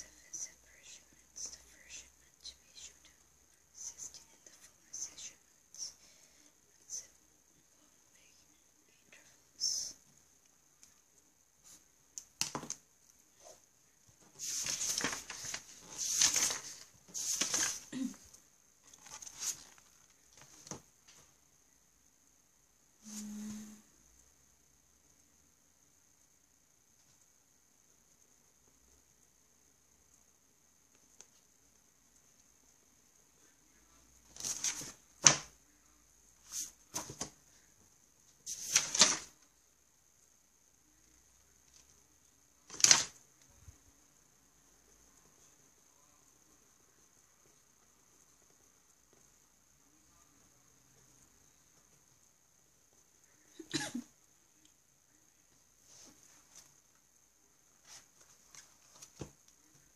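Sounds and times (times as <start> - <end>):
faint high whine: 13.0 - 35.0
notebook pages rustling: 14.2 - 17.9, 18.9 - 20.8, 34.3 - 35.5, 36.4 - 37.4, 38.5 - 39.4, 42.6 - 43.2, 57.8 - 59.4
notebook page turning: 14.4 - 17.9, 18.9 - 20.8, 34.3 - 35.5, 36.4 - 37.4, 38.5 - 39.3, 42.6 - 43.2.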